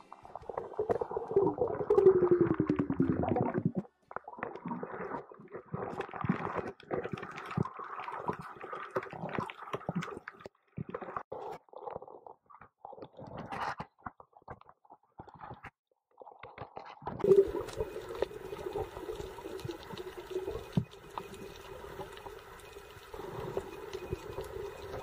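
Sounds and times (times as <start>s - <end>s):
crackle of faint clicks: 17.1s - 25.0s
low underwater hum: 17.2s - 25.0s.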